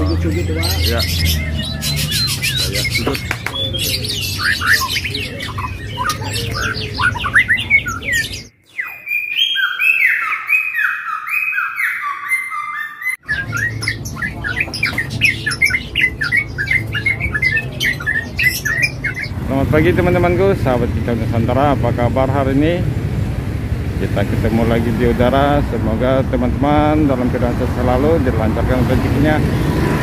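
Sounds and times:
whistled bird notes: 0.0 - 19.3
songbirds chirping and squawking: 0.0 - 30.0.

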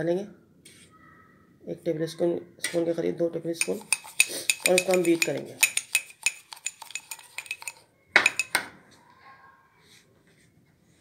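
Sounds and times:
spoon clinking against ceramic cup: 3.6 - 8.7.

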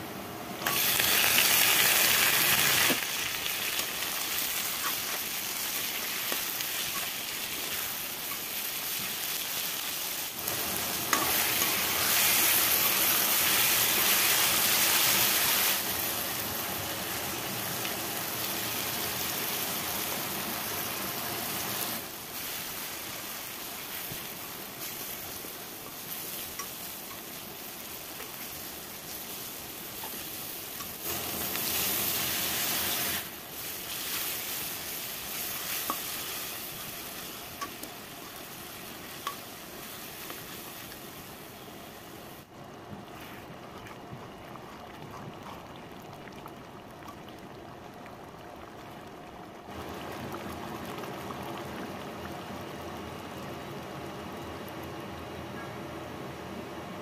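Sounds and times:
masala sizzling in a wok: 0.0 - 42.5.

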